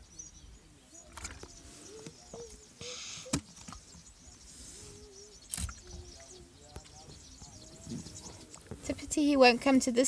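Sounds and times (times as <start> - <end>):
brief rustle: 4.6 - 5.8.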